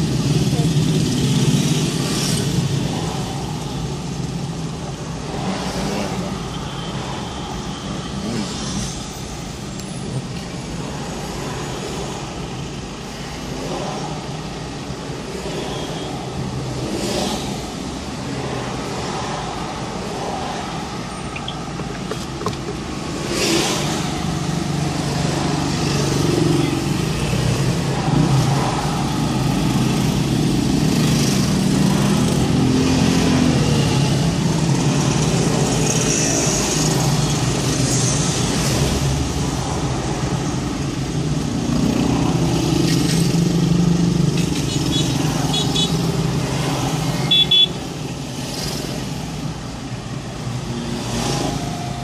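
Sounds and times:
low engine hum of traffic: 0.0 - 52.0
motorcycles passing: 22.9 - 52.0.

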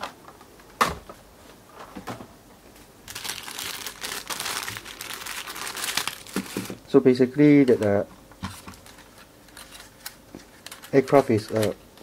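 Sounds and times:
plastic bags crinkling: 3.1 - 7.8, 8.5 - 11.8.

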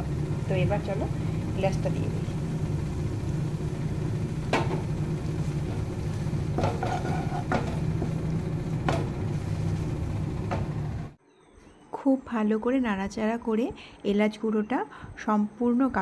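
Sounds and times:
steady low hum: 0.0 - 11.2
spatula scraping in pan: 5.4 - 8.2.

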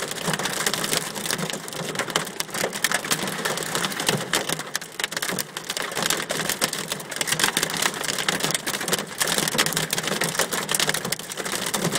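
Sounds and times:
hail clattering on window glass: 0.0 - 11.9.

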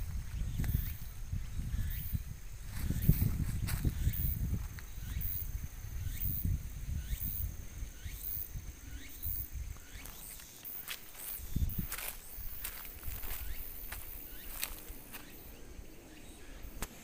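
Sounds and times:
wind rumble on microphone: 0.0 - 10.2, 11.1 - 17.0
insects calling in high pulses: 0.0 - 17.0.

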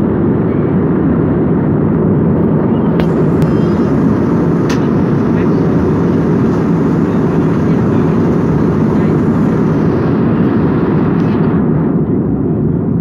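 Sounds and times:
jet airliner cabin rumble: 0.0 - 13.0.

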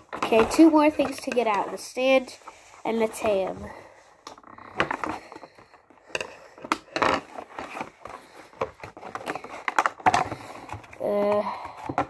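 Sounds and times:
packaging rustling and clicking: 4.2 - 12.0.

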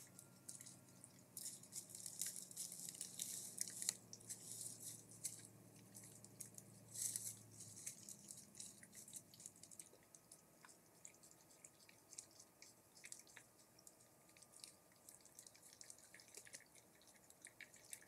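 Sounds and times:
soft hiss: 0.0 - 14.4
faint dripping ticks: 0.0 - 18.0
low steady hum: 0.0 - 18.0.

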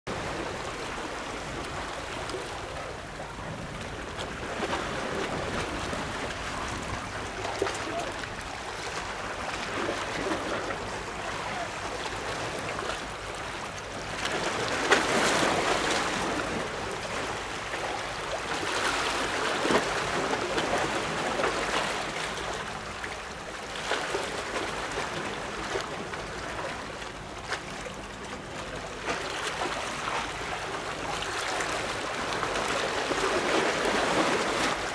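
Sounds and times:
sea water lapping and splashing: 0.1 - 34.9.

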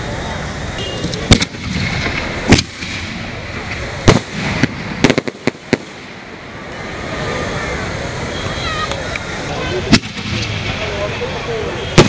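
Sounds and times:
firework bangs: 0.0 - 11.2, 11.8 - 12.0
sharp firework cracks: 0.8 - 7.8, 8.4 - 10.9.

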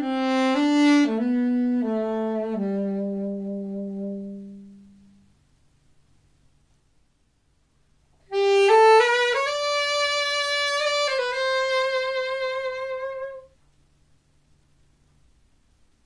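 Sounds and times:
saxophone slow phrase: 0.0 - 5.2, 8.3 - 13.5.

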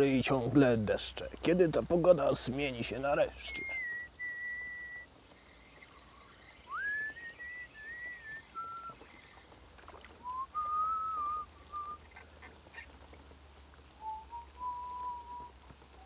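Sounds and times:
man whistling a slow tune: 3.5 - 5.1, 6.7 - 9.0, 10.2 - 12.0, 14.0 - 16.0.

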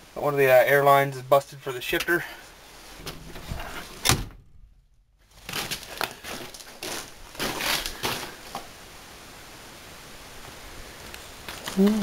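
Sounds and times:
faint steady hiss: 0.0 - 12.0
footsteps crunching on gravel: 5.3 - 8.7.

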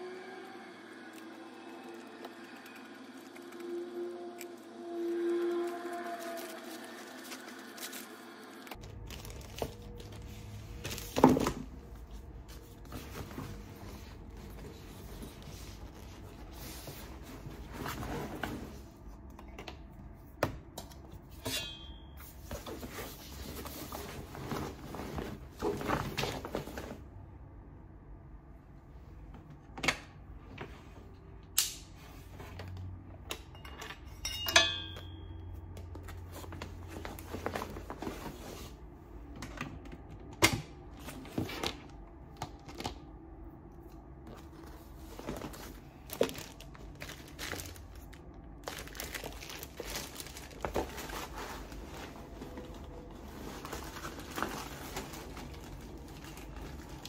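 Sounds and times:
high metallic ring: 21.4 - 22.4, 33.5 - 35.6
fabric rustling: 22.4 - 27.1, 44.3 - 57.0.

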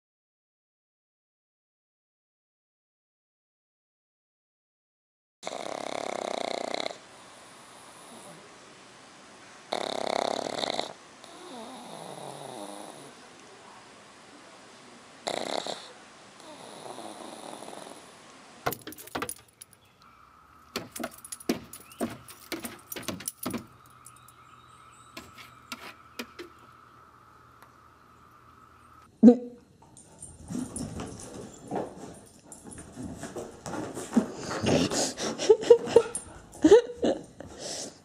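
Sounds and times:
dog snort: 5.4 - 7.0, 9.7 - 13.2, 15.2 - 18.1, 34.3 - 35.5
dog snoring: 5.4 - 8.5, 9.7 - 13.2, 15.2 - 18.1
dog claws scraping wooden deck: 20.7 - 24.2, 25.1 - 26.6
steady high hum: 23.7 - 29.1.

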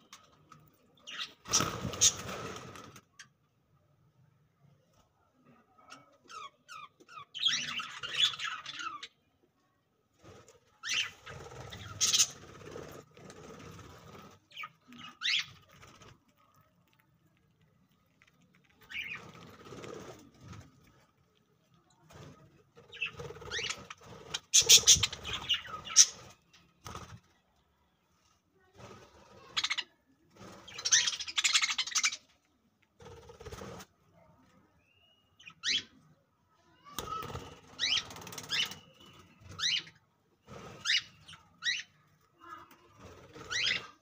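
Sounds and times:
budgerigars chirping and chattering: 6.3 - 9.1, 10.8 - 13.0, 14.5 - 15.8, 18.8 - 19.6, 22.8 - 26.4, 30.7 - 32.2, 37.8 - 40.0, 43.4 - 43.9.

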